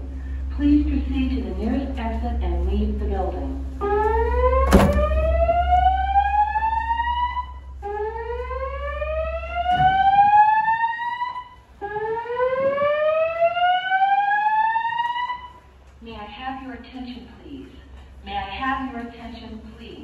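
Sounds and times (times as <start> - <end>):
fire alarm whoop tone: 3.8 - 15.6.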